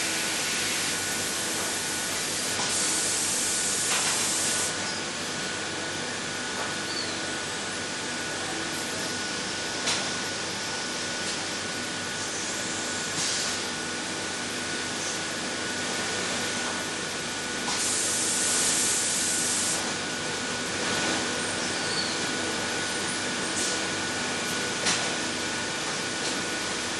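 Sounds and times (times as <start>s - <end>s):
pneumatic grinder air hiss: 2.1s - 4.8s, 13.1s - 13.6s, 17.7s - 20.0s.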